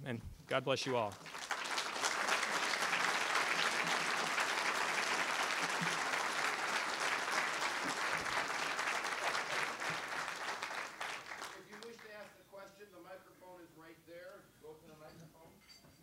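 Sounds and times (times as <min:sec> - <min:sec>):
audience applauding: 0:00.8 - 0:12.3.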